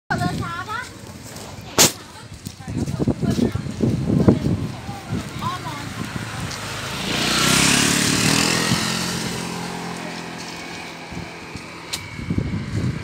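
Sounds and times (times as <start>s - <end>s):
motorcycle engine passing by: 4.3s - 13.0s.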